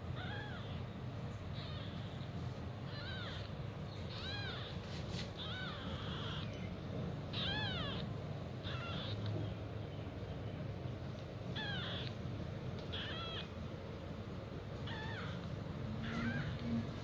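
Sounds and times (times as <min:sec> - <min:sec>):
kitten mewing: 0:00.1 - 0:00.9, 0:01.5 - 0:09.6, 0:11.5 - 0:13.8, 0:14.7 - 0:17.0.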